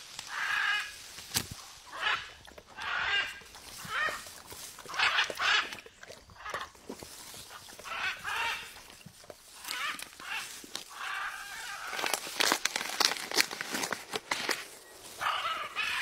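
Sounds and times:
macaw calls: 0.2s - 1.1s, 1.9s - 4.3s, 4.9s - 6.7s, 7.8s - 9.0s, 9.6s - 12.5s, 14.5s - 16.0s.

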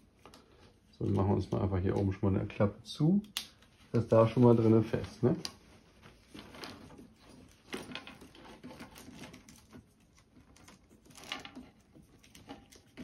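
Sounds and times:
cables rustling: 3.5s - 13.0s.

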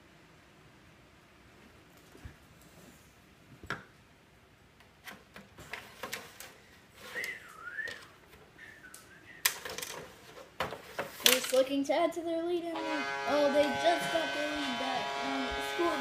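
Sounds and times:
wavering whistle-like tone: 7.1s - 9.4s
plastic pieces clicking and knocking: 9.4s - 10.1s, 11.2s - 11.7s.

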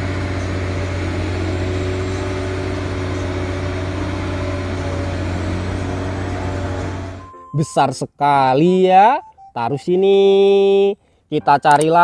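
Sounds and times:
diesel engine humming: 0.0s - 8.2s.

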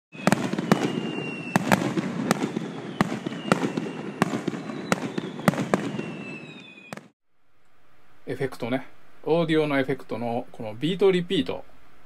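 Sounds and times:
faint high whistle: 0.2s - 1.8s, 2.4s - 7.1s
firework bangs: 0.2s - 7.1s.

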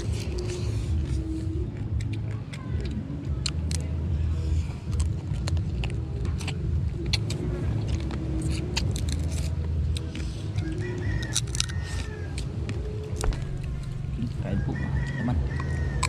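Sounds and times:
steady low rumble: 0.0s - 16.0s
crab shells cracking: 1.9s - 3.9s, 4.9s - 14.1s.

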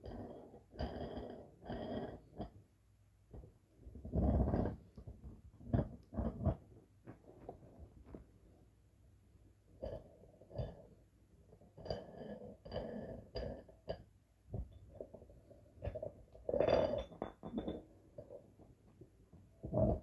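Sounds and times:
weight plates knocking and clinking: 16.6s - 17.9s.

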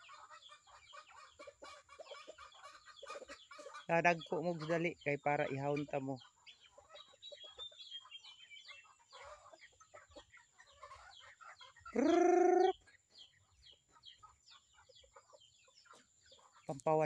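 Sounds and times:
chickens clucking and peeping: 0.0s - 17.0s
loud held chicken call: 12.0s - 12.8s.

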